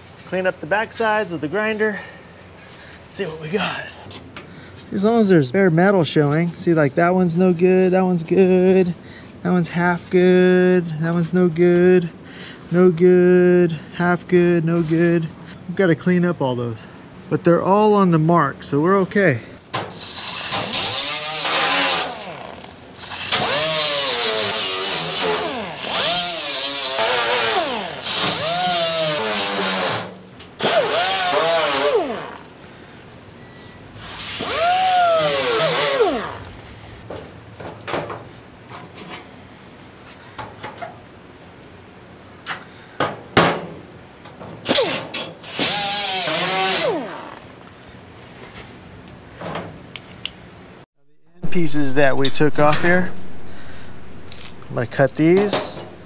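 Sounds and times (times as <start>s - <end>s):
power tool on steel: 19.9s - 32.5s, 34.0s - 36.5s, 44.6s - 47.6s
pneumatic grinder whining: 19.9s - 32.6s, 34.0s - 36.8s, 44.6s - 47.7s, 52.2s - 56.0s.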